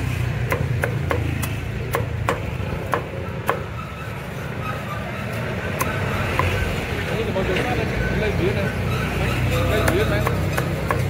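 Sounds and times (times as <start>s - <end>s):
cleaver chopping on wooden block: 0.4s - 3.7s, 9.8s - 11.0s.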